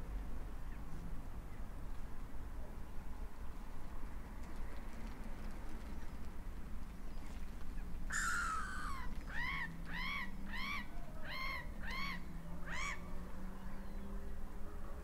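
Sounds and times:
gull calling: 8.1 - 13.0.

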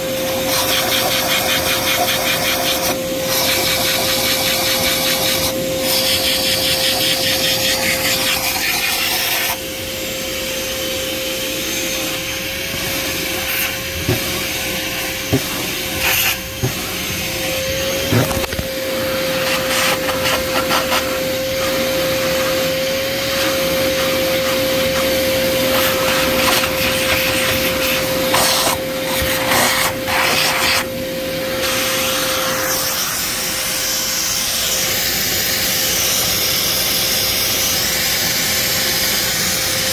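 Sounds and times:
motor-driven tool whining: 2.6 - 30.4.

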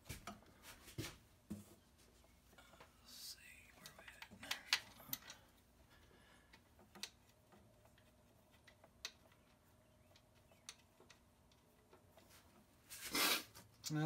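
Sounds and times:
faint metal clicks of bolts: 2.7 - 12.3.

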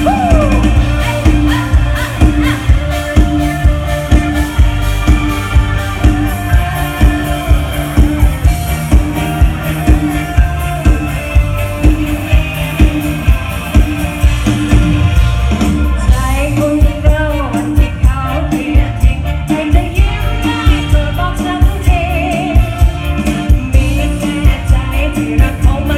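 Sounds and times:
person singing: 0.0 - 3.6, 16.0 - 25.9
drums steady beat: 0.0 - 25.9
live band over loudspeakers: 0.0 - 25.9.

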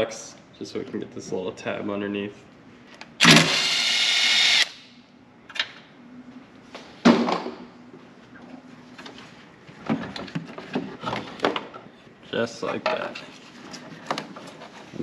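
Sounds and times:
cordless drill running: 3.2 - 4.8.

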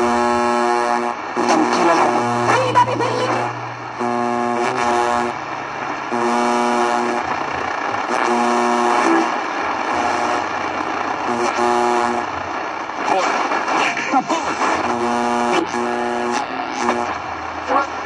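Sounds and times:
radio noise hiss: 0.0 - 18.0
music of held notes on radio: 11.3 - 18.0.

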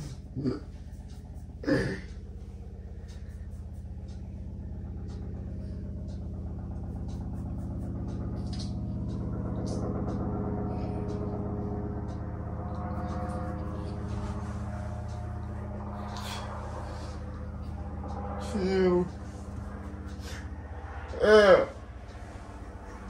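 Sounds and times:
vehicle engine running: 0.0 - 23.0.

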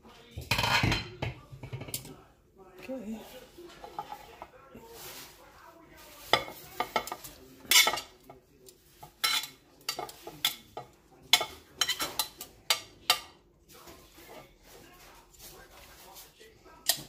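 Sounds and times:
metal tongs scraping a ceramic plate: 6.3 - 13.3.

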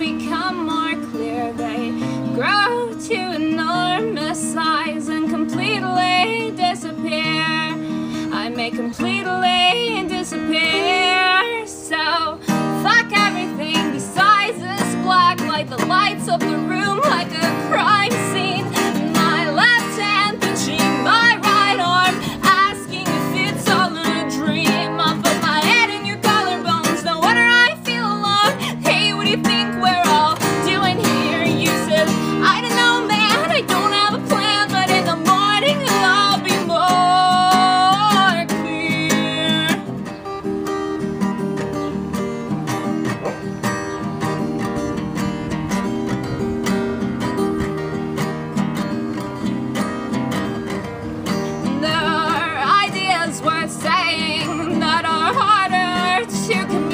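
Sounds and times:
woman singing with vibrato: 0.0 - 40.0, 51.6 - 56.9
acoustic guitar strumming: 0.0 - 56.9.

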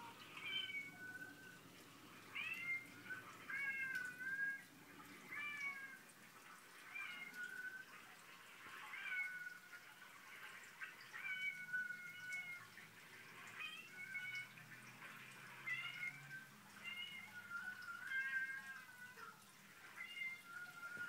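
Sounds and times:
cats meowing from a speaker: 0.4 - 1.3, 2.3 - 6.0, 6.8 - 7.8, 8.8 - 9.7, 11.1 - 12.8, 13.5 - 14.5, 15.6 - 21.0.

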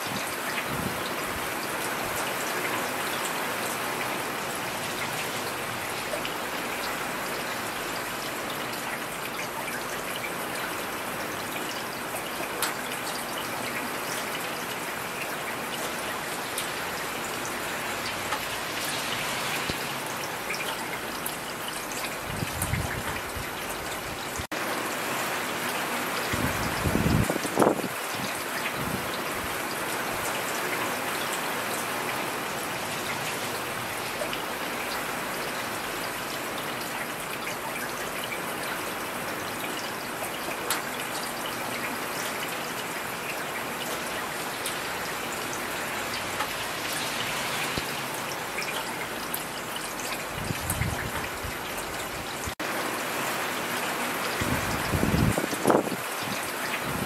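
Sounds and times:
heavy rain: 0.0 - 57.0.

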